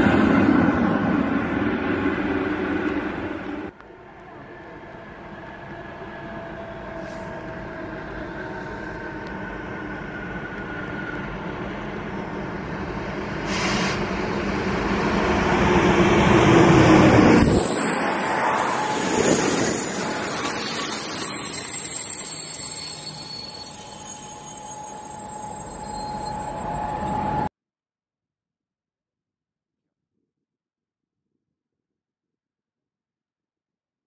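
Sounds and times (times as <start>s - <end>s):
train running rumble: 0.0s - 27.4s
train brakes squealing: 4.3s - 14.4s, 16.4s - 27.5s.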